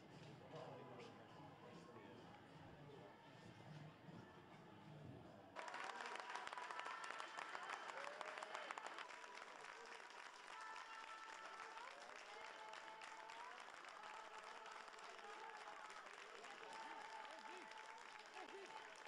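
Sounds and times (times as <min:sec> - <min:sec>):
crowd applause: 0:05.6 - 0:19.0.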